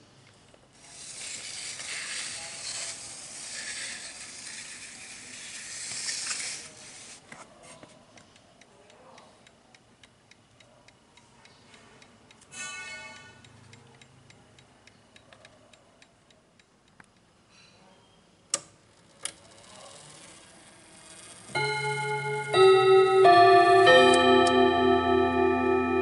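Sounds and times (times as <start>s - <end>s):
wall clock ticking: 21.6s - 26.0s.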